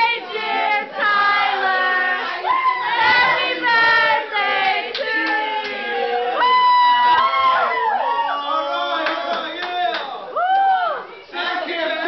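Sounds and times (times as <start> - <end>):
young voices singing together: 0.0 - 6.5, 11.0 - 12.0.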